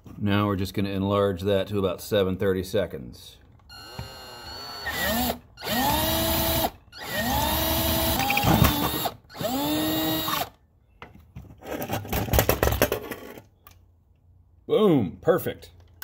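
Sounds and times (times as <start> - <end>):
power drill whining: 3.7 - 10.6.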